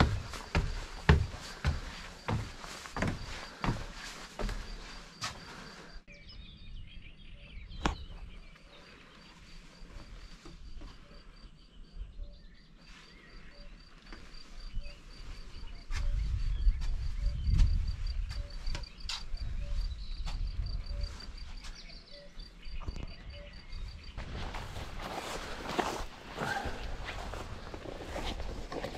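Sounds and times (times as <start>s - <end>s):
faint high-pitched chirp: 6.1s - 9.8s, 10.9s - 24.2s.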